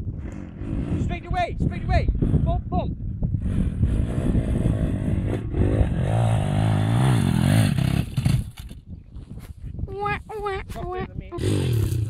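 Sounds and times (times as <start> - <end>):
motorbike engine revving: 3.4 - 8.7, 11.4 - 12.0.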